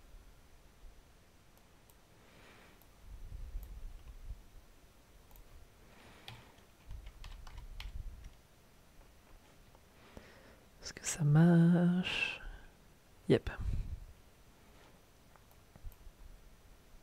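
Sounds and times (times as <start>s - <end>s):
computer keyboard clicking: 6.2s - 8.4s.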